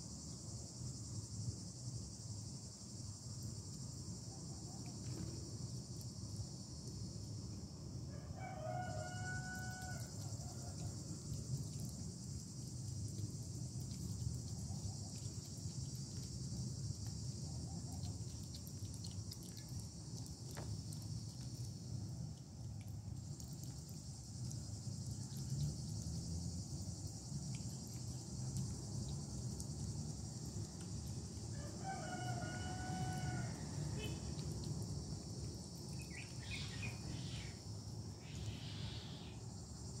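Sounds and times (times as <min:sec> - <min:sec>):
crickets chirring: 0:00.0 - 0:40.0
rooster crowing: 0:08.1 - 0:10.9, 0:31.5 - 0:34.2.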